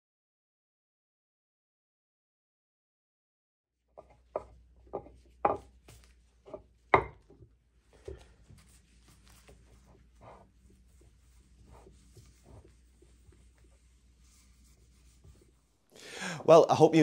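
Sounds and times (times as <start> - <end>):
cloth rubbing on cutting board: 7.7 - 15.8.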